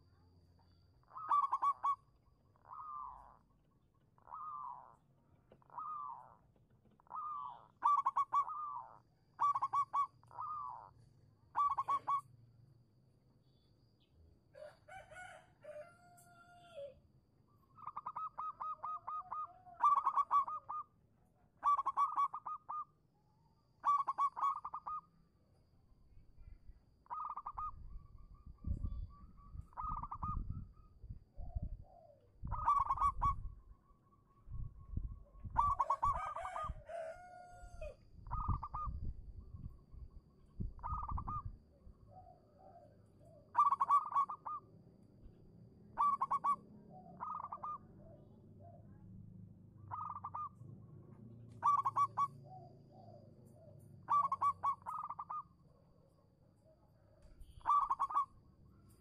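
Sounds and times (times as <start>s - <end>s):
dove trilled cooing: 1.0s - 3.6s, 4.2s - 12.3s, 17.7s - 23.0s, 23.8s - 25.1s, 27.0s - 44.7s, 45.9s - 49.1s, 49.8s - 50.6s, 51.5s - 59.0s.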